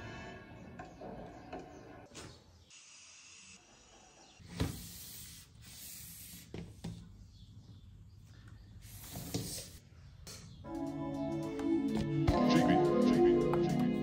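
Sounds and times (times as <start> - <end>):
background music: 10.6 - 14.0.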